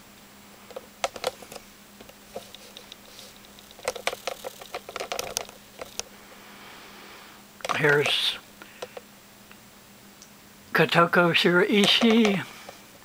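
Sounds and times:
faint steady hum: 0.0 - 13.0
light clicks and taps: 7.6 - 9.1, 11.7 - 12.8.

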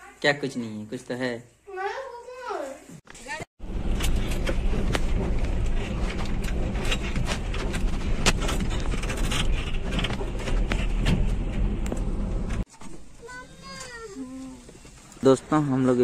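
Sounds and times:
rattles and knocks: 3.6 - 13.2
van engine and road rumble: 3.6 - 16.0.

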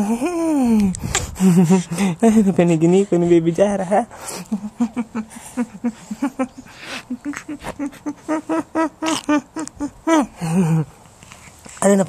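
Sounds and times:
baby giggling: 4.4 - 10.3.

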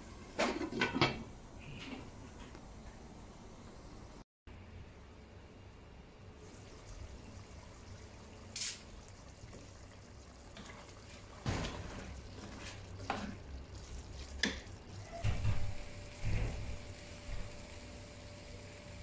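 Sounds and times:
meat in sauce bubbling and frying: 6.4 - 19.0
short hiss: 8.5 - 8.9
spatula scraping and knocking pan: 10.6 - 16.8.

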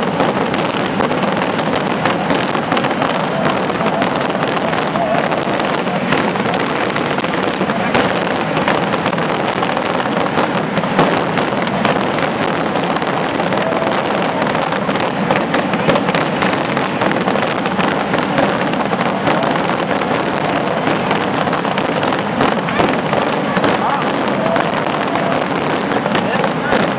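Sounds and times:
firework rockets bursting: 0.0 - 26.9.

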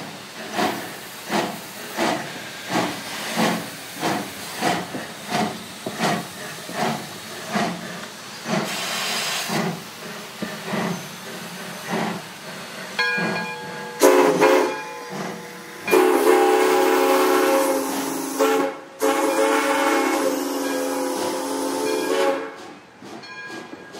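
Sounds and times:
steady hiss of steam: 0.0 - 23.6
steam locomotive exhaust chuffing: 0.0 - 23.9
locomotive chime whistle: 13.1 - 22.6.

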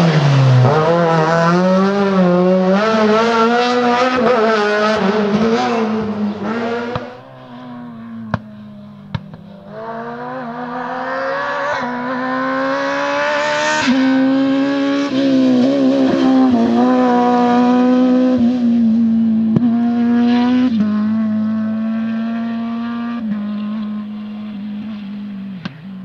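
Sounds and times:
rally car engine at high revs: 0.0 - 26.0.

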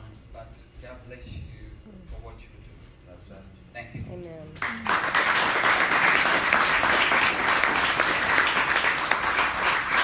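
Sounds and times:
congregation applauding: 4.6 - 10.0.

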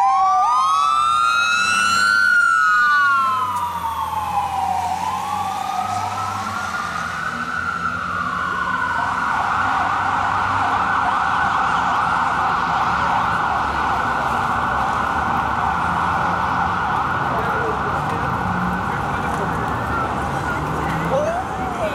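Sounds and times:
warbling siren yelp: 0.0 - 14.2
fire engine siren wailing: 0.0 - 21.9.

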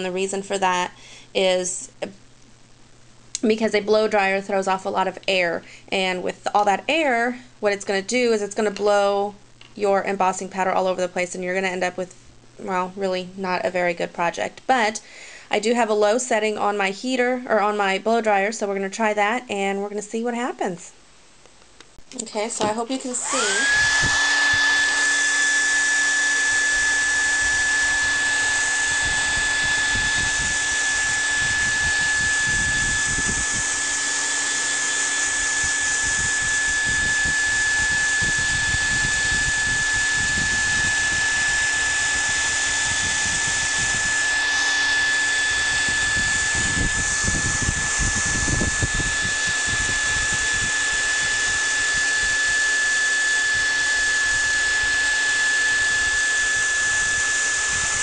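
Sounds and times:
hair dryer running: 22.6 - 58.0.

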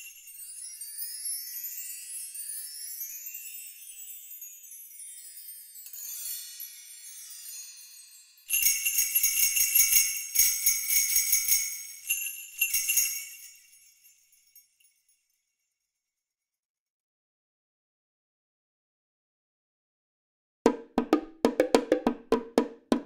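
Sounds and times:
jingle bells shaken: 0.0 - 15.5
high tinkling bells: 0.0 - 15.9.

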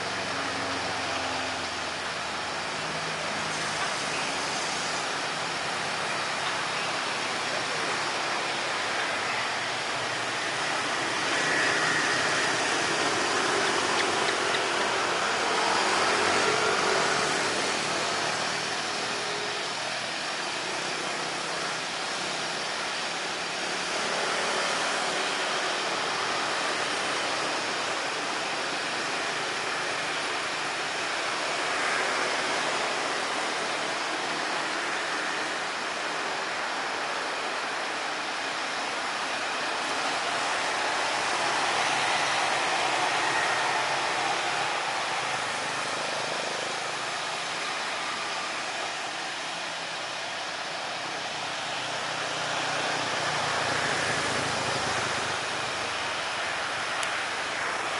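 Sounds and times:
steady rushing noise: 0.0 - 57.9.

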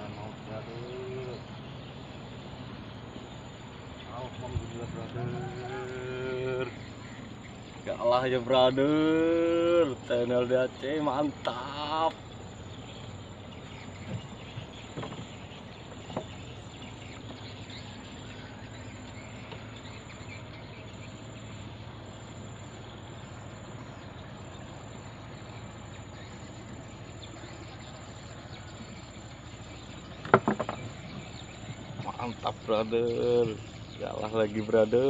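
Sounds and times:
insects chirping: 0.0 - 35.0
low background hum: 0.0 - 35.0
knocking and rattling: 14.0 - 15.4, 30.2 - 31.9.

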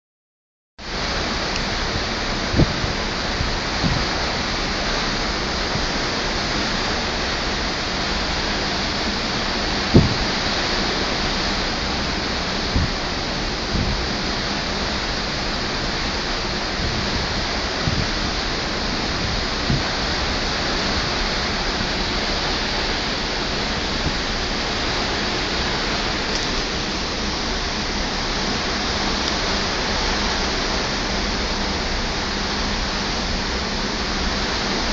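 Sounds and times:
sea rushing along ship: 0.8 - 34.9
soft low bumps: 9.9 - 10.5, 12.7 - 14.2, 16.8 - 18.4, 19.1 - 21.2.

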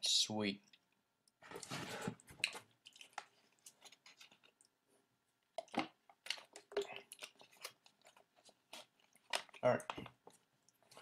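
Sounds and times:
mouth noises of chewing: 2.3 - 4.8, 5.5 - 11.0.

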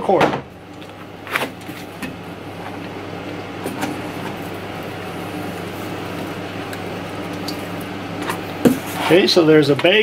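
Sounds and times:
steady low hum: 0.0 - 10.0.

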